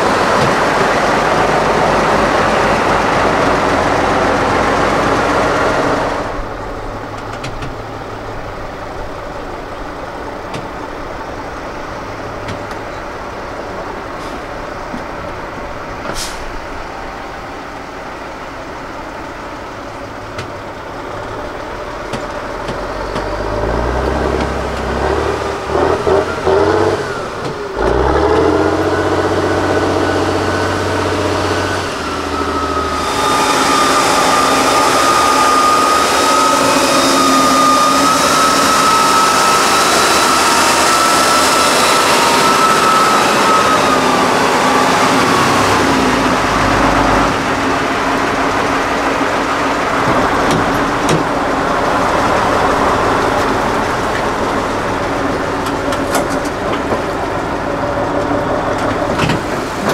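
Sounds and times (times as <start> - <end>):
high whine: 0.0 - 59.9
truck diesel engine running: 0.0 - 59.9.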